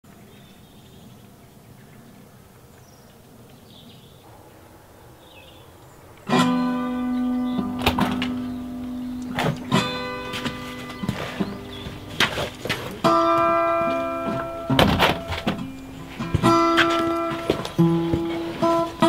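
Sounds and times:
acoustic guitar strumming: 6.2 - 19.0.

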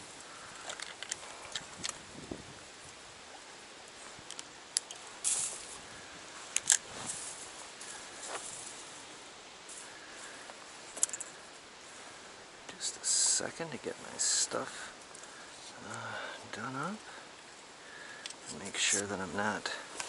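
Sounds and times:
fishing gear clicks and rustles: 0.0 - 2.1, 3.9 - 11.7, 17.3 - 20.0
steady hiss: 0.0 - 20.0.

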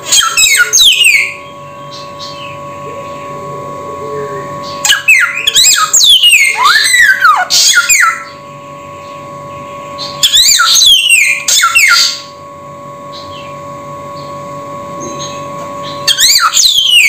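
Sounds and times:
faint steady hum: 0.0 - 17.0
bird singing whistled phrases: 0.1 - 3.3, 4.3 - 8.4, 10.0 - 12.3, 15.2 - 17.0.

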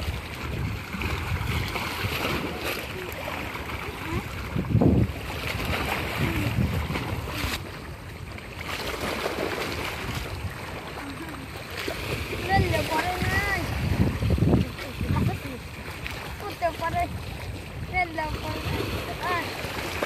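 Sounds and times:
water slapping against bank: 0.0 - 20.0
wind buffeting microphone: 0.0 - 20.0.

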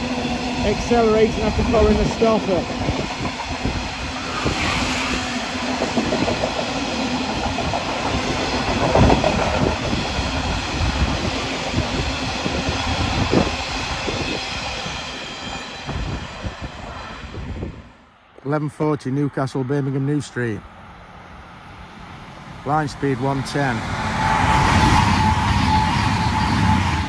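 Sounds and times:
train wheels clattering on track: 0.0 - 16.2.

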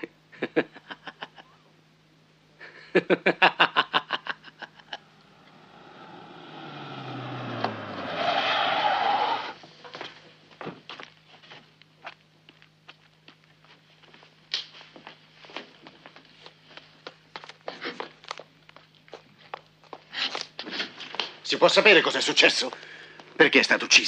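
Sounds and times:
man laughing: 0.3 - 1.6, 2.6 - 5.2
rush of noise: 5.1 - 9.6.

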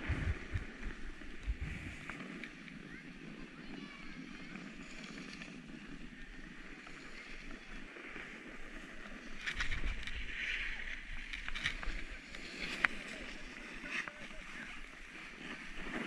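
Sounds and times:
low rumble: 0.0 - 2.4
skis sliding over packed snow: 0.0 - 16.0.

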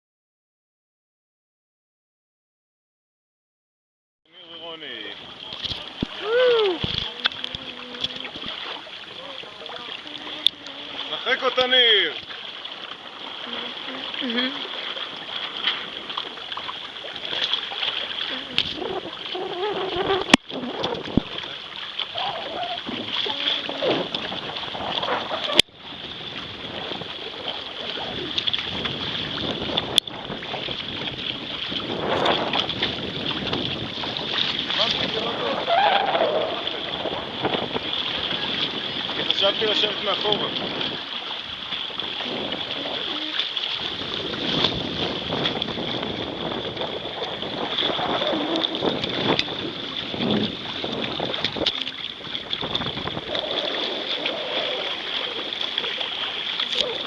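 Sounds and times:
water rushing along a hull: 4.3 - 57.0
wind on the microphone: 5.1 - 11.2, 18.2 - 57.0.

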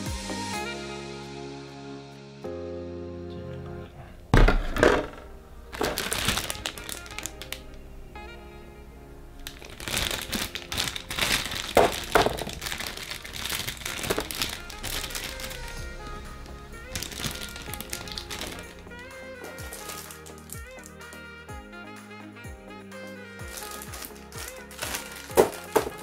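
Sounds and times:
background music: 0.0 - 26.0
plastic parts clicking and crinkling: 4.4 - 7.8, 9.4 - 15.8, 16.9 - 18.7, 19.4 - 20.9, 23.5 - 26.0.

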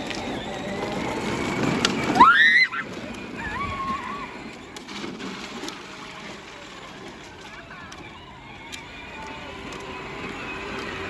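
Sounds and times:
toy tractor wheels rolling on concrete: 0.0 - 11.0
child squealing: 2.2 - 4.4.

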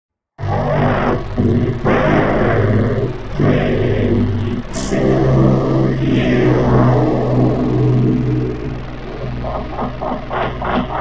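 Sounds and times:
low drone: 0.4 - 11.0
pulsing higher tones: 0.4 - 11.0.

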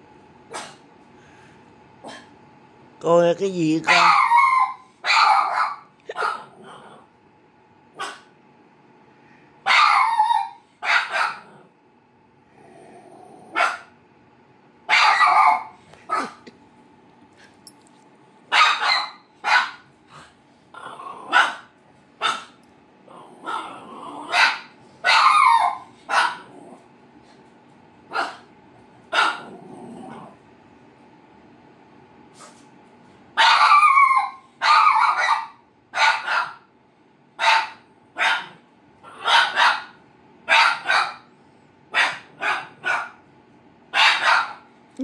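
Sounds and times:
small dog barking: 0.5 - 0.8, 3.8 - 6.6, 7.9 - 8.3, 9.6 - 11.6, 13.5 - 13.9, 14.9 - 16.4, 18.5 - 19.9, 21.2 - 22.6, 23.4 - 26.6, 28.1 - 28.5, 29.1 - 29.5, 33.4 - 36.7, 37.4 - 41.3, 41.9 - 43.2, 43.9 - 44.7.

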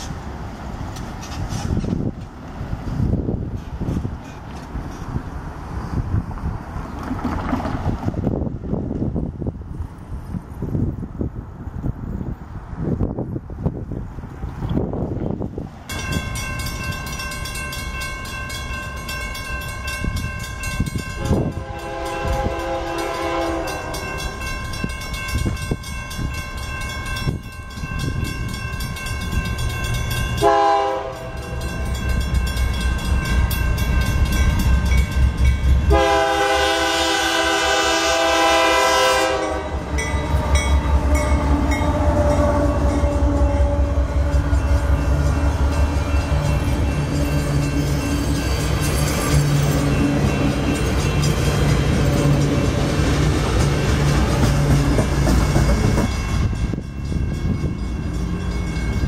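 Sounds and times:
train rumble passing: 0.0 - 59.0
crossing bell ringing: 15.9 - 59.0
locomotive horn blasts: 21.0 - 24.4, 30.4 - 31.6, 35.8 - 47.8.

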